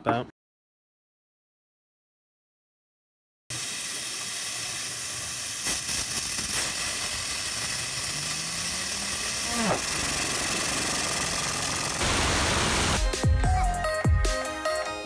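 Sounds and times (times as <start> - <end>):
waterjet stream hissing: 3.5 - 13.0
spinning wheel hum: 7.4 - 12.1.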